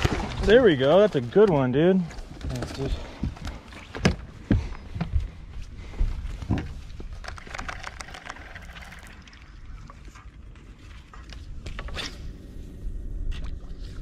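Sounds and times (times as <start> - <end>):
light clicks and rattles: 6.6 - 9.1
steady low rumble: 8.9 - 14.0.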